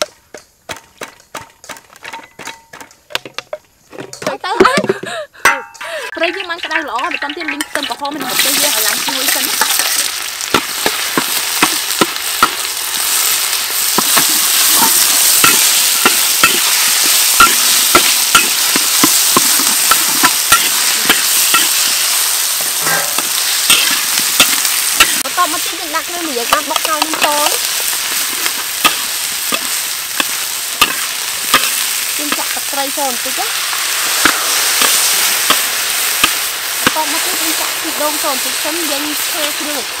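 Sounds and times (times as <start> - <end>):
metal spatula scraping a wok: 5.4 - 25.7, 33.5 - 39.7
food sizzling in hot oil: 5.5 - 40.0.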